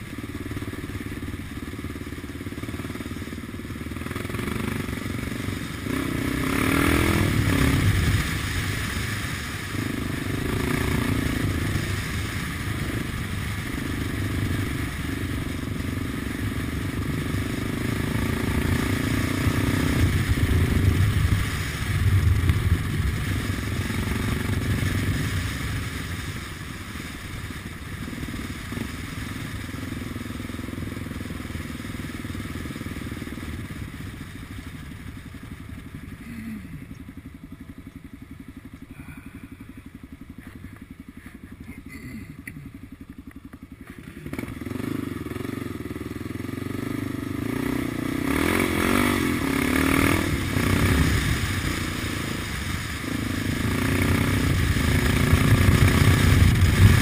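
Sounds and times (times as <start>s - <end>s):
motorcycle engine: 0.0s - 57.0s
rushing wind noise: 48.2s - 57.0s.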